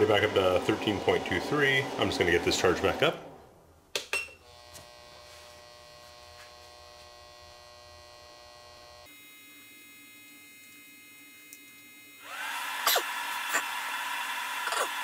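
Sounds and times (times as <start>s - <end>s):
battery charger hum and whine: 4.4s - 15.0s.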